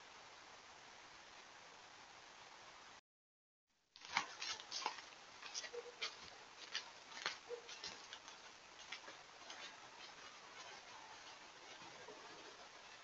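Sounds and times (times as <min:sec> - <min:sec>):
microphone hiss: 0:00.0 - 0:03.0, 0:03.8 - 0:13.0
deer moving through leaf litter: 0:04.0 - 0:13.0.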